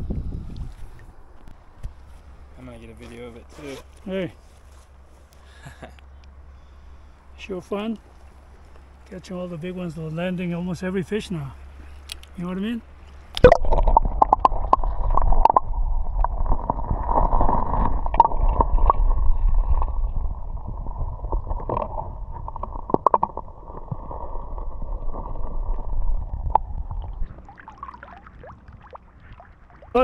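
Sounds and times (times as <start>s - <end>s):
underwater gurgling rush: 13.2s - 30.0s.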